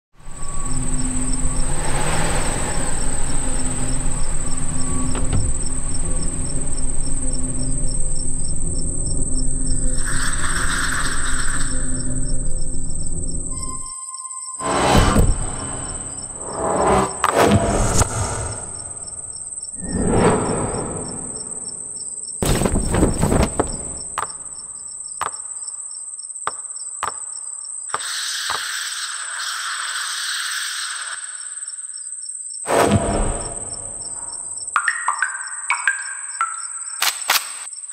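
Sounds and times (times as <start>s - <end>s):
low rumbling drone: 0.2s - 13.8s
high insect-like trill: 0.2s - 17.3s
cricket-like chirring: 0.2s - 37.9s
swoosh: 1.0s - 4.9s, 14.6s - 21.8s
sharp drip-like click: 34.7s - 37.7s.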